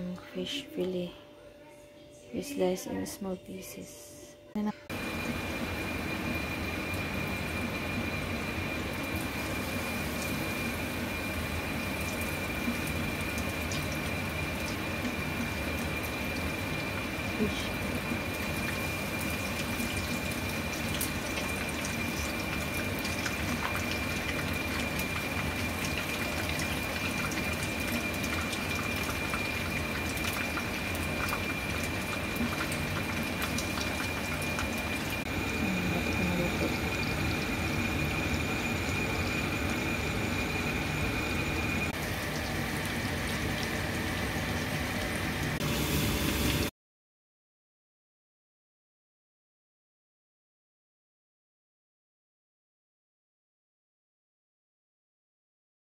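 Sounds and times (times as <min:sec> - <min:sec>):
fish frying in hot oil: 0:04.9 - 0:46.7
faint high whine: 0:33.7 - 0:46.7.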